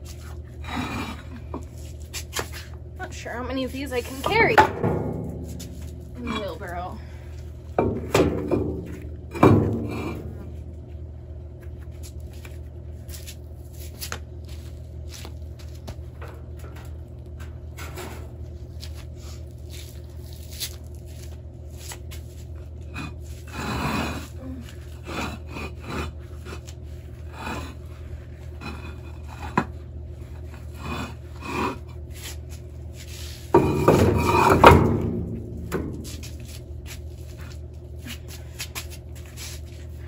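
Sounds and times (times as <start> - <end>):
stone scraping against stone: 22.8 - 27.9, 28.5 - 29.7, 30.5 - 34.6.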